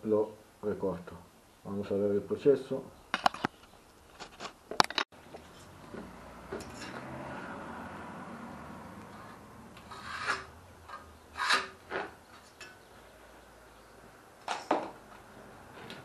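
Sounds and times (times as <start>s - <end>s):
knife scraping along steel rule: 9.2s - 12.0s.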